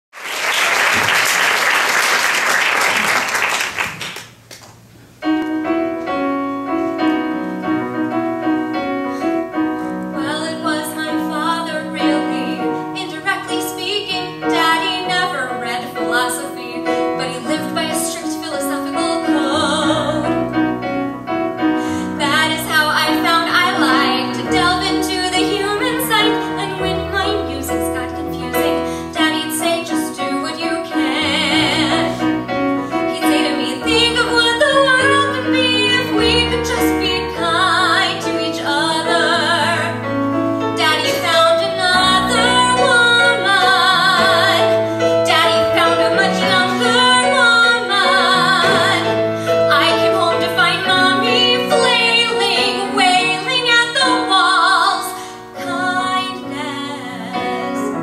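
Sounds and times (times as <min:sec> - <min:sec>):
audience applause: 0:00.1 - 0:04.8
piano: 0:00.1 - 0:58.0
woman singing: 0:10.2 - 0:20.5, 0:22.2 - 0:40.0, 0:40.8 - 0:58.0.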